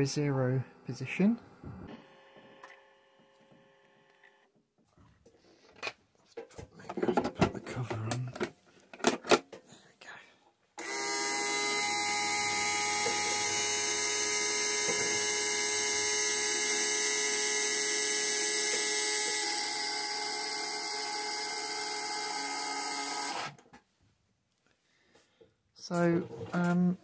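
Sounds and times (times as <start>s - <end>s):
milling machine spindle whine: 10.8s - 23.5s.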